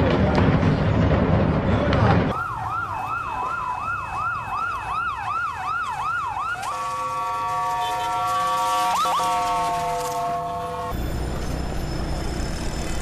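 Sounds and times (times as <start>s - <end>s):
police siren yelp: 2.3s - 11.0s
steady horn-like siren tone: 2.3s - 13.0s.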